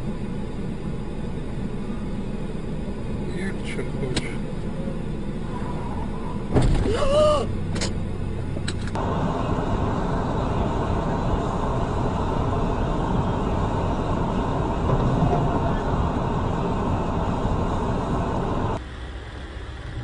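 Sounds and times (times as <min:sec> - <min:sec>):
car engine and road noise: 0:00.0 - 0:20.0
car collision impact: 0:06.5 - 0:06.9
person shouting: 0:06.8 - 0:07.5.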